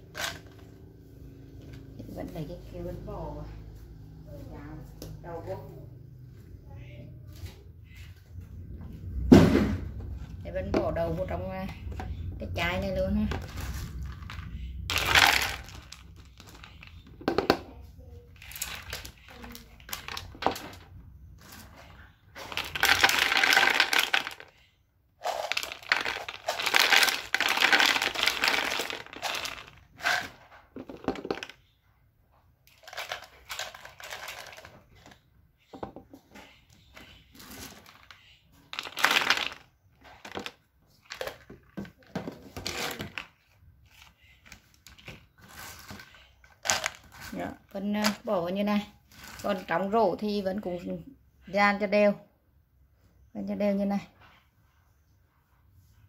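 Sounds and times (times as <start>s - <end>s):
beans pouring into plastic bottle: 13.4s - 16.7s, 22.5s - 24.6s, 25.2s - 31.5s, 38.8s - 39.6s
handling sounds: 25.2s - 31.5s.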